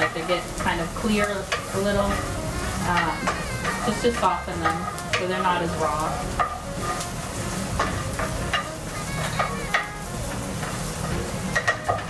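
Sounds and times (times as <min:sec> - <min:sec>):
onions sizzling in oil: 0:00.0 - 0:12.0
utensil scraping pan: 0:00.0 - 0:12.0.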